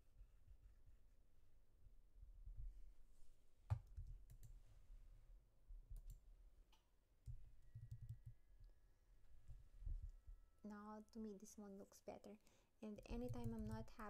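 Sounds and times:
computer mouse clicks: 0:07.3 - 0:08.3, 0:13.0 - 0:13.9
faint low rumble: 0:08.1 - 0:10.6.

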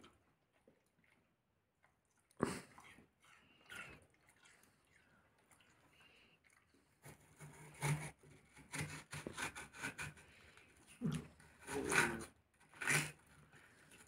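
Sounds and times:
knife slicing watermelon: 0:07.0 - 0:10.4, 0:11.0 - 0:13.4.

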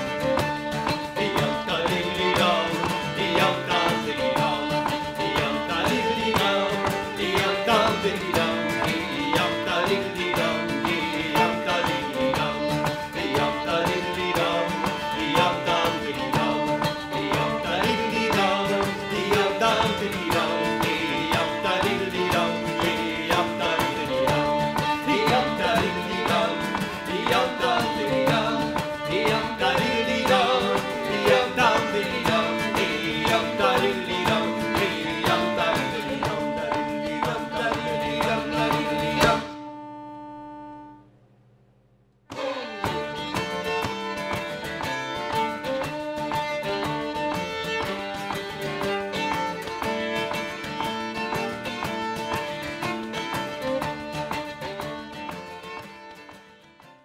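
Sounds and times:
acoustic guitar accompaniment: 0:00.0 - 0:40.9, 0:42.3 - 0:57.0
fiddle melody: 0:00.0 - 0:41.0, 0:42.3 - 0:57.0
shruti box drone: 0:00.0 - 0:41.1.

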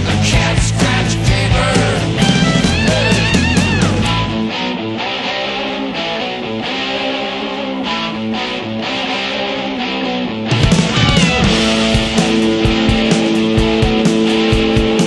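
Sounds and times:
guitar rock music: 0:00.0 - 0:15.0.

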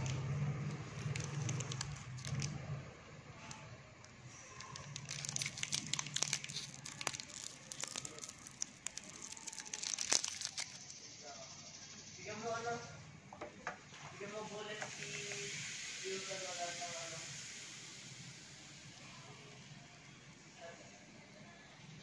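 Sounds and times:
plastic wrapper crinkling: 0:00.0 - 0:11.0.

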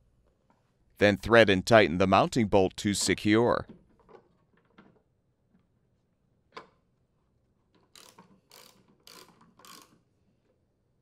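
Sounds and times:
socket ratchet clicking: 0:07.9 - 0:10.0.

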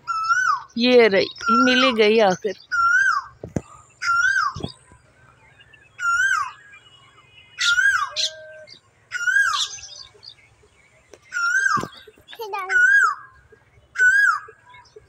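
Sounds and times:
bird whistled call: 0:02.5 - 0:04.9, 0:05.7 - 0:10.1, 0:11.2 - 0:14.8.

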